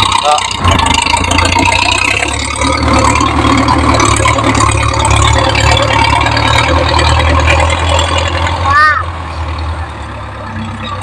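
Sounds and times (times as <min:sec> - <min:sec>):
rattle: 0:00.0 - 0:08.7
tractor diesel engine running: 0:00.0 - 0:11.0.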